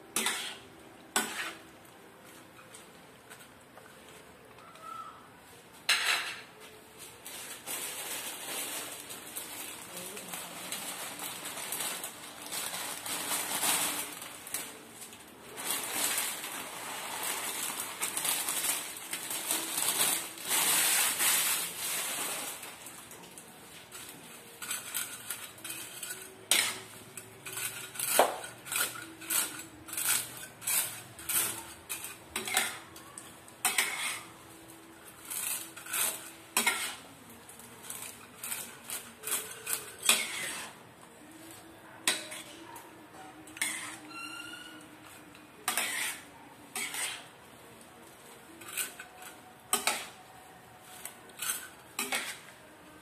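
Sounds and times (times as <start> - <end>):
spatula scraping and knocking on wok: 0.1 - 1.6, 33.6 - 34.3, 35.4 - 37.1, 45.6 - 47.3.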